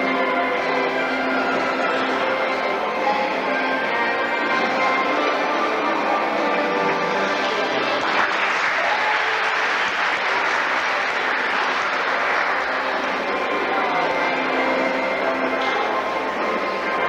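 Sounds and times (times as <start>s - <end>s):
background music: 0.0s - 17.0s
audience clapping: 6.1s - 14.8s.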